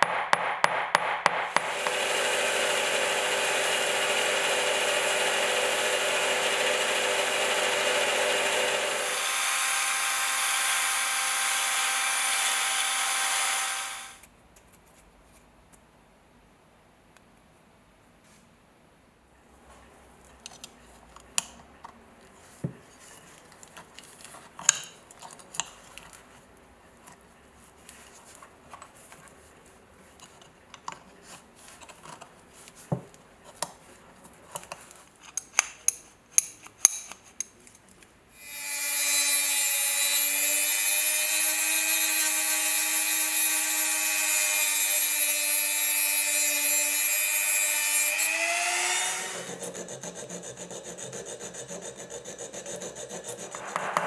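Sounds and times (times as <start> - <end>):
rotary tool whining: 1.5 - 14.2, 38.4 - 50.9
needle file rasping on metal: 48.8 - 54.0.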